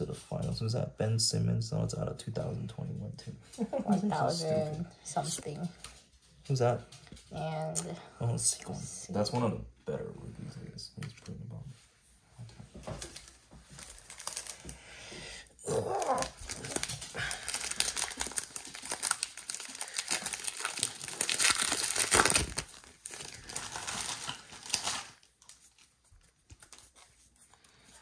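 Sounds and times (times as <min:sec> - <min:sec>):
card pack wrappers tearing and crinkling: 0:12.9 - 0:14.8, 0:15.6 - 0:27.3.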